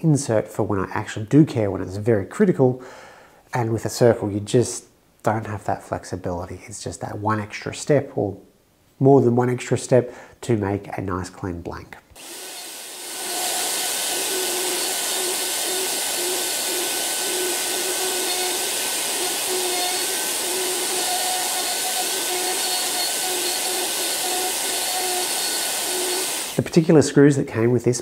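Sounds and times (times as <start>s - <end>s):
router routing plywood: 12.2s - 26.8s.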